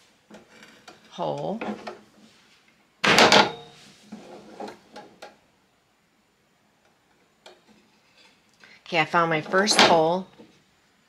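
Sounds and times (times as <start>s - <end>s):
wooden boards knocking on metal table: 3.0s - 3.7s
metallic ring: 3.3s - 3.8s.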